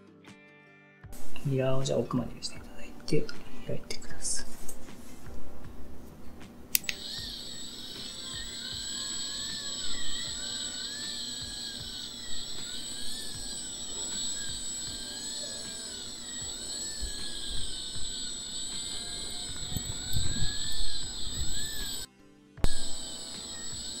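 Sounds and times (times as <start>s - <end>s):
faint rising and falling tone: 1.2s - 24.0s
motorized handpiece whine: 6.7s - 24.0s.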